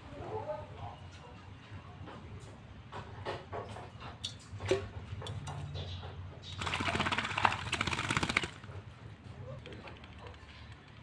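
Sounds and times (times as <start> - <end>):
wings fluttering in water: 6.5 - 8.7
bird splashing in water: 6.6 - 8.6.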